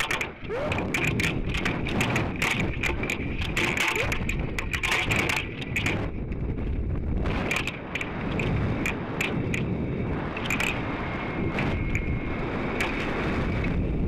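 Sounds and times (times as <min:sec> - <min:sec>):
fabric crackling and clattering: 0:00.0 - 0:09.7.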